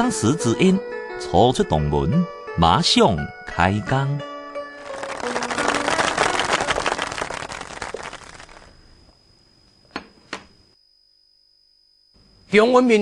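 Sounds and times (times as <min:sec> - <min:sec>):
dense crackling: 0:04.8 - 0:08.8.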